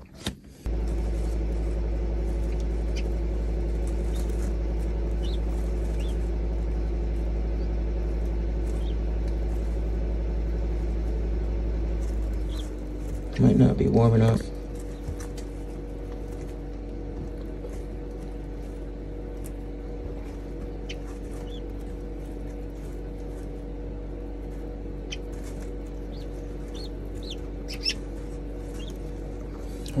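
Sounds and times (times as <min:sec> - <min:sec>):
low electrical hum: 0:00.0 - 0:30.0
guinea fowl keets peeping: 0:03.9 - 0:06.3, 0:08.6 - 0:09.1, 0:12.2 - 0:12.9, 0:20.8 - 0:21.8, 0:25.0 - 0:25.4, 0:26.0 - 0:29.1.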